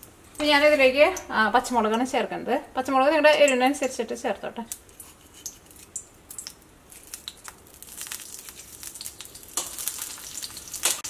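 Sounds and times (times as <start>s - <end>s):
hot oil crackling and popping: 3.3s - 11.0s.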